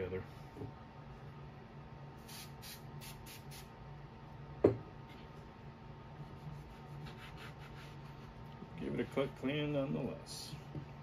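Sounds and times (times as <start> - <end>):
aerosol spray hissing: 2.2 - 3.7.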